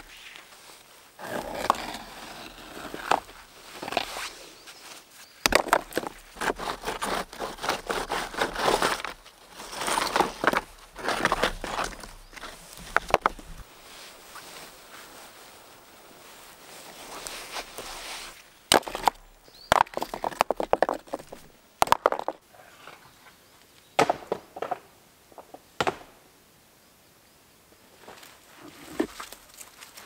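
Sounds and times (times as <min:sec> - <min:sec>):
moss and soil rustling: 0:00.0 - 0:21.5
stones knocking together: 0:05.4 - 0:13.7, 0:18.7 - 0:22.4.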